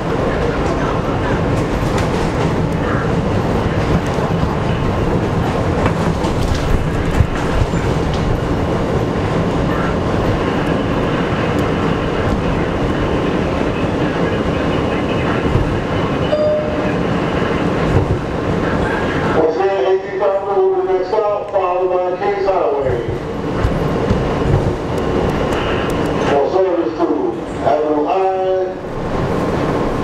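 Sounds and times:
subway train wheels rumbling: 0.0 - 30.0
clickety-clack over track joints: 0.4 - 10.8, 15.4 - 15.8, 17.8 - 18.3, 22.7 - 26.3.

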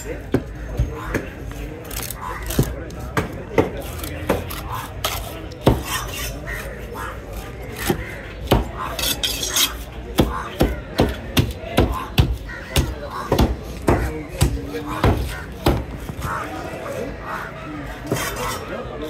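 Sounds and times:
knife chopping fish: 2.5 - 16.2.

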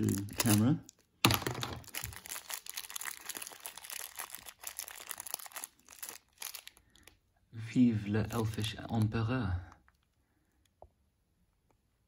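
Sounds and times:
plastic bag crinkling: 0.0 - 7.2, 8.0 - 9.2.

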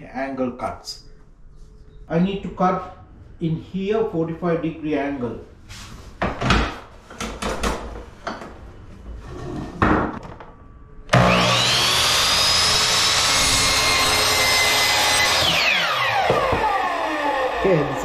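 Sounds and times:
miter saw motor whining: 11.1 - 18.0.

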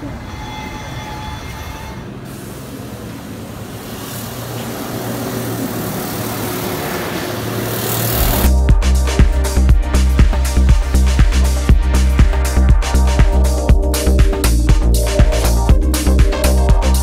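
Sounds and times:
bus driving by: 0.0 - 8.5
car driving by: 2.2 - 8.6.

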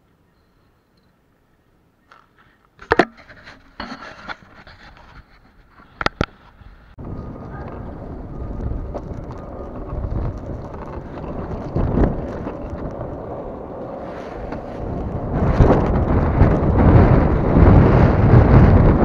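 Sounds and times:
skateboard wheels rolling on asphalt: 2.1 - 19.0
wind buffeting microphone: 5.9 - 19.0.

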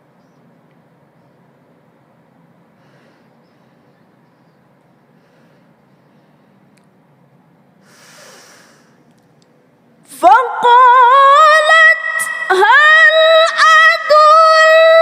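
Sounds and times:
woman inhaling at microphone: 7.8 - 9.0
woman reciting melodically: 10.1 - 15.0.

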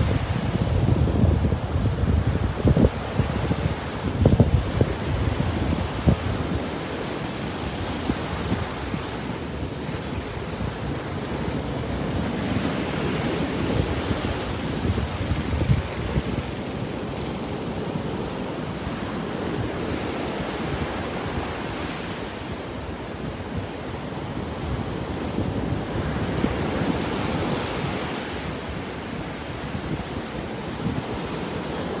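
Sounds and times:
wind buffeting microphone: 0.0 - 18.2
surf washing up a beach: 0.0 - 32.0.

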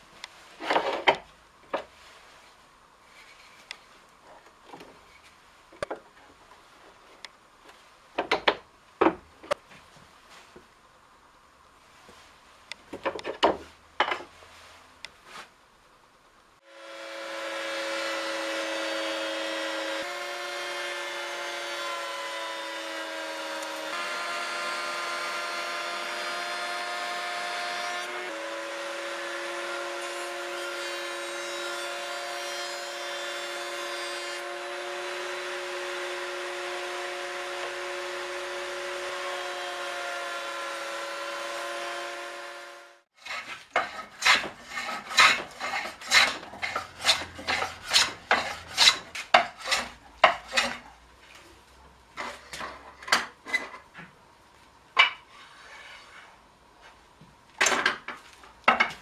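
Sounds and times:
hand tool scraping wood: 43.2 - 51.5, 55.2 - 57.0.

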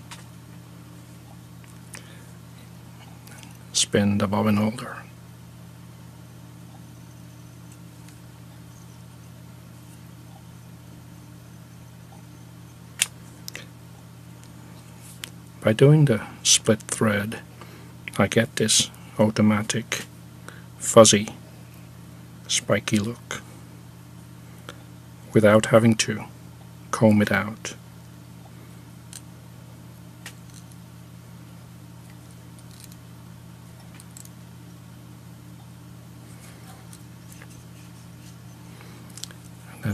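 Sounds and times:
low background hum: 0.0 - 39.9.

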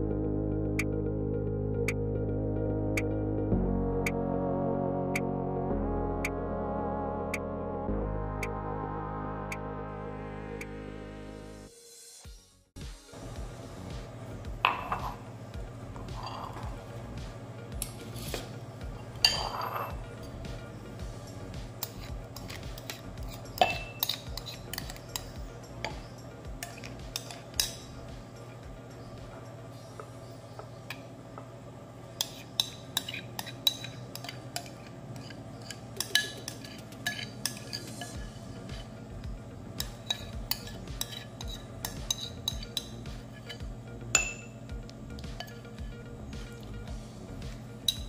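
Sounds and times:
spoon scraping ceramic bowl: 14.7 - 15.2, 16.0 - 16.8, 17.9 - 20.4, 21.8 - 28.0, 32.2 - 38.9, 39.8 - 44.6
ringing spoon clink: 19.2 - 20.0, 21.8 - 28.0, 43.5 - 44.6.

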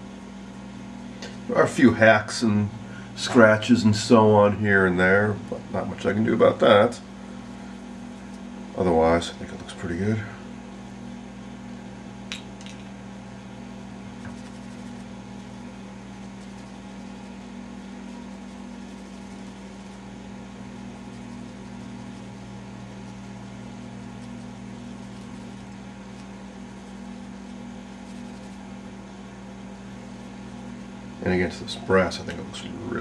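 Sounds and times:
low background hum: 0.0 - 33.0.

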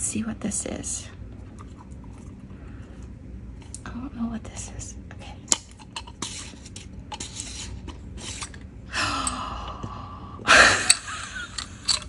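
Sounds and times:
woman gasping: 8.9 - 10.7.

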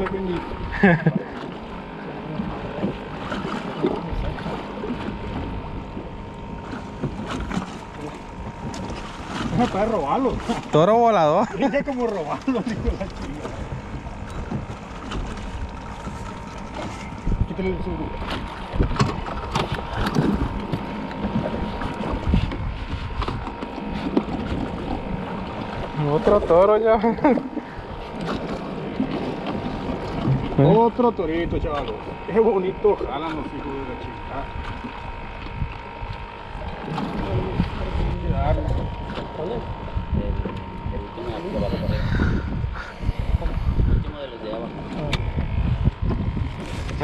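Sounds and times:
water around boat: 0.0 - 47.0
wind on microphone: 12.7 - 26.5, 34.2 - 47.0
knocks on inflatable boat: 18.2 - 24.7, 44.6 - 47.0.

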